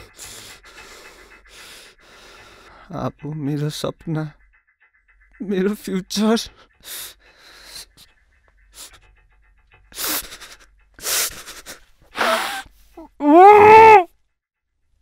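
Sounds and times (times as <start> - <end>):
man gasping breaths: 12.1 - 12.7
man screaming: 13.2 - 14.1.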